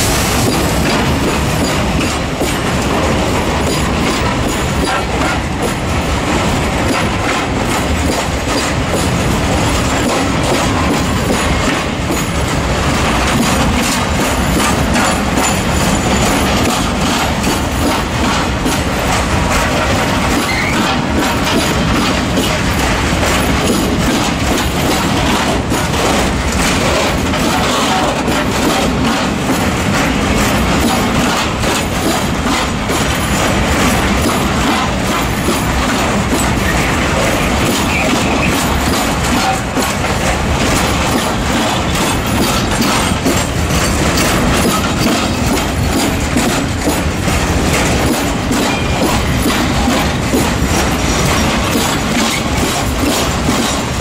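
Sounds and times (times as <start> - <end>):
freight train wheels rumbling: 0.0 - 54.0
wheels clattering over rail joints: 0.0 - 54.0
wheel squeal: 20.4 - 21.0.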